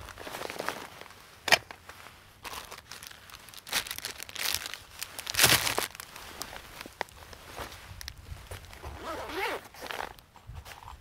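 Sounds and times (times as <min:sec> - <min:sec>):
rummaging in backpack: 0:00.0 - 0:11.0
plastic wrapper crinkling: 0:02.4 - 0:07.4.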